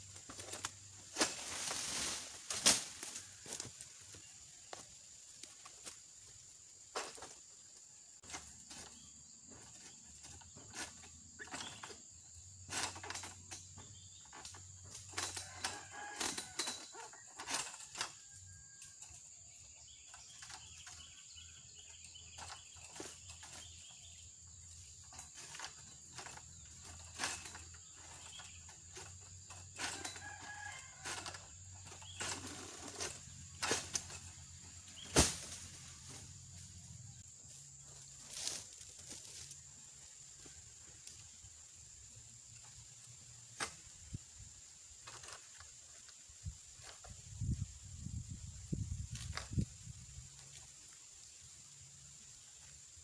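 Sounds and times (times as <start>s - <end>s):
sickle cutting palm fronds: 0.1s - 6.0s, 25.2s - 36.8s.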